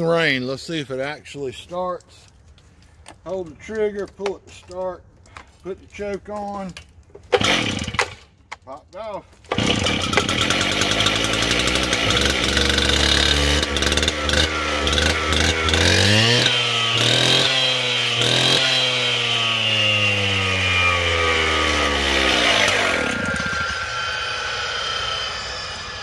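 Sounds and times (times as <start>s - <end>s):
cut-off saw engine revving: 7.4s - 8.2s, 9.5s - 26.0s.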